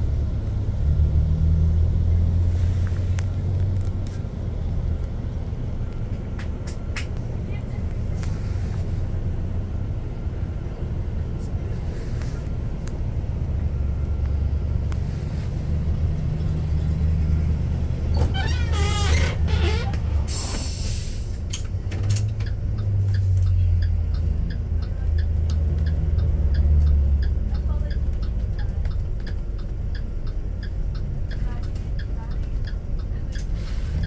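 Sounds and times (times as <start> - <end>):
bus engine rumbling: 0.0 - 34.0
air brake hiss: 20.3 - 21.4
turn signal ticking: 21.2 - 34.0.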